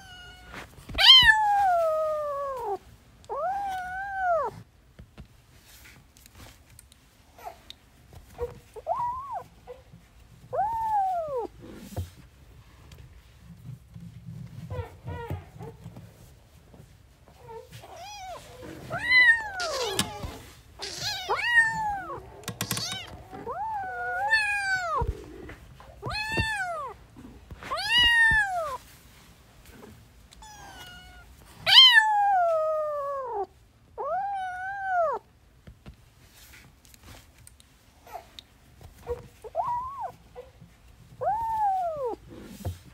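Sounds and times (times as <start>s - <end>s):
kittens scuffling: 3.4s - 33.2s
kittens meowing: 17.8s - 27.0s.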